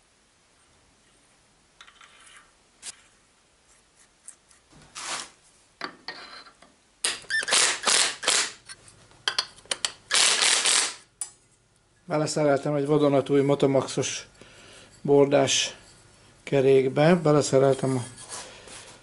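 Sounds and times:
cordless drill bursts: 7.3 - 8.6, 10.1 - 11.0.

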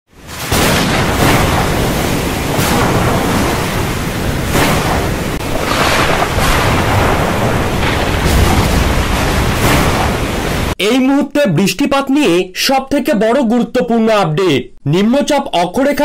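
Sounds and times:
heavy rain: 0.1 - 10.8
storm wind blowing hard: 0.2 - 10.8.

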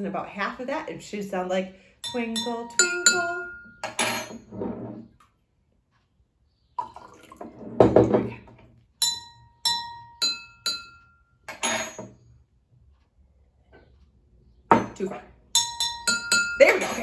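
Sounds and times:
spoon tapping ringing glasses: 2.0 - 4.4, 9.0 - 12.0, 15.6 - 17.0
water pouring into glass: 6.8 - 7.6.

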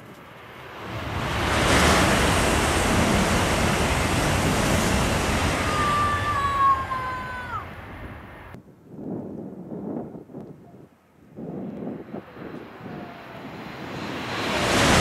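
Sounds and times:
high-speed train rushing past: 0.0 - 8.6, 11.9 - 15.0.

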